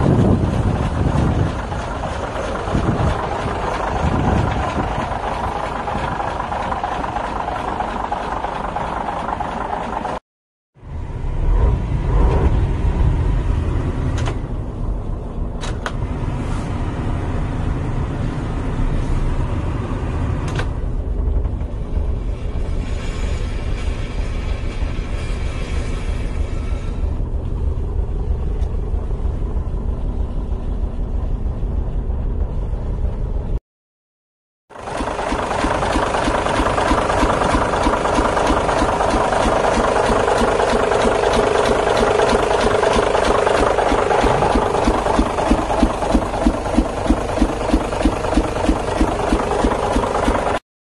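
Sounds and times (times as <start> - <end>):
diesel engine deep rumble: 0.0 - 10.2, 10.8 - 23.8, 24.5 - 33.6, 34.8 - 50.6.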